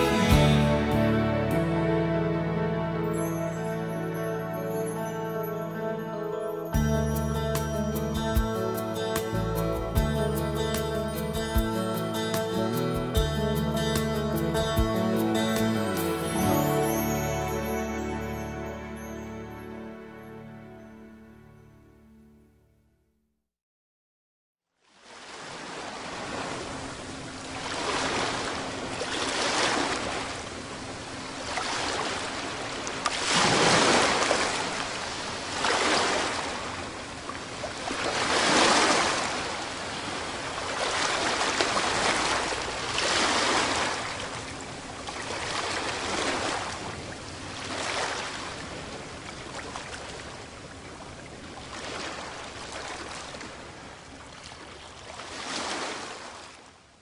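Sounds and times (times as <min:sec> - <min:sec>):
waves breaking ashore: 0:25.0 - 0:56.8.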